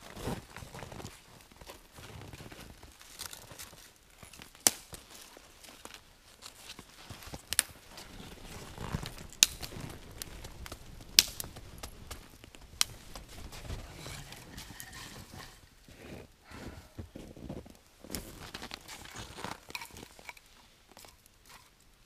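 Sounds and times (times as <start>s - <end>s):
sharp snaps: 10.7s - 12.2s.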